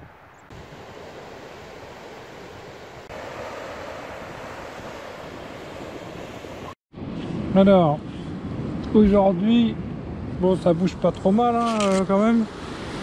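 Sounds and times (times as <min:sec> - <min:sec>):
sea surf breaking over rocks: 0:00.5 - 0:06.8.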